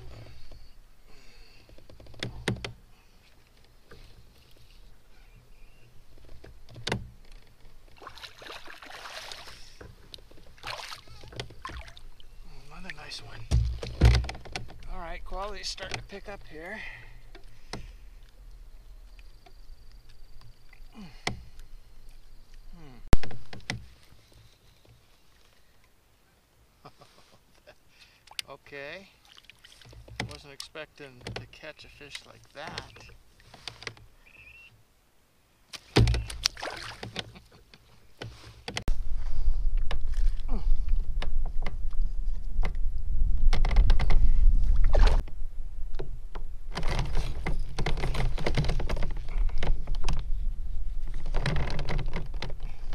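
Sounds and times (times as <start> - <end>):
small clicks and rustles: 1.6 - 4.9, 6.1 - 8.0, 29.5 - 34.1, 43.5 - 50.4, 51.0 - 52.9
wind rumbling on microphone: 38.6 - 52.9.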